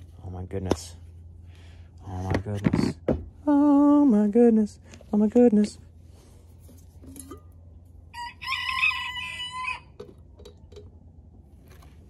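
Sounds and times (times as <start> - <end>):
rooster crowing: 8.1 - 10.1.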